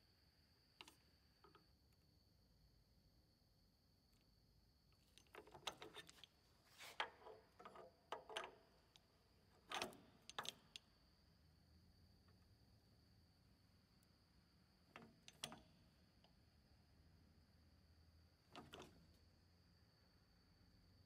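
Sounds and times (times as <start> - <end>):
metallic clicks and rattles: 7.0 - 10.9.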